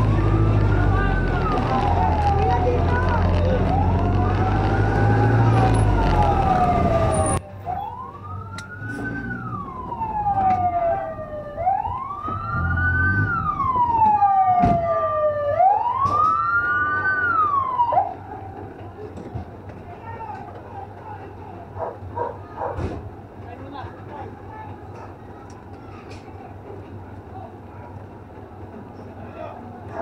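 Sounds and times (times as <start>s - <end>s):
fire truck siren wailing: 0.0s - 18.8s
engine and road rumble: 0.0s - 30.0s.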